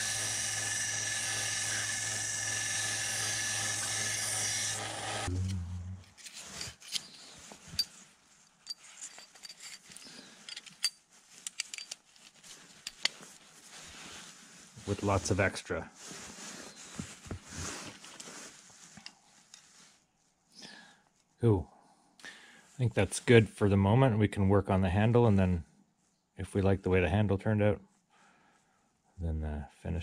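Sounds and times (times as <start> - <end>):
belt sander grinding steel: 0.0 - 5.4
sander winding down rumble: 0.0 - 6.0
faint clicks and scrapes: 6.0 - 15.4, 16.0 - 20.4.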